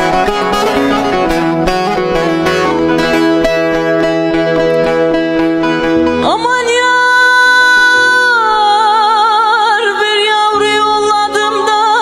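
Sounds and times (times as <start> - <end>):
instrumental accompaniment: 0.0 - 12.0
woman singing folk song: 6.2 - 12.0.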